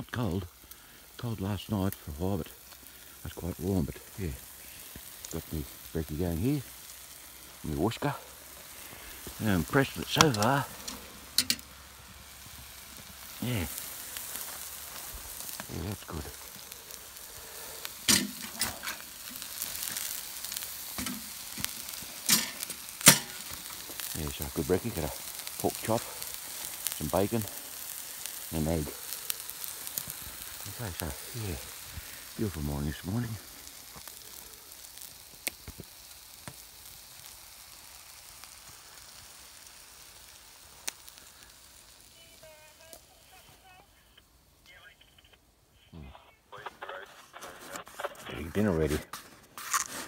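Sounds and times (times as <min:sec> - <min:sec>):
food sizzling on hotplate: 0:00.0 - 0:44.9, 0:46.5 - 0:50.0
sharp pops: 0:08.3 - 0:32.4, 0:33.4 - 0:39.4.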